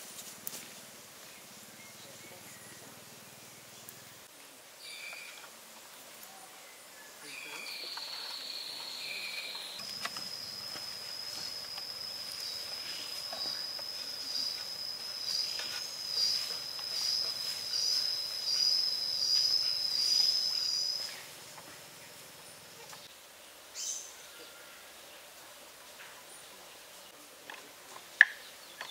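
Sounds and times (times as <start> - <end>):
insect buzzing: 7.6 - 23.2.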